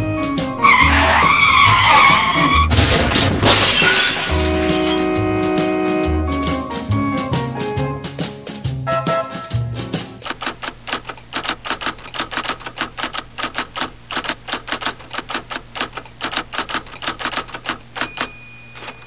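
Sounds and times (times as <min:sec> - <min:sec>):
typewriter keys clacking: 0:09.3 - 0:19.0.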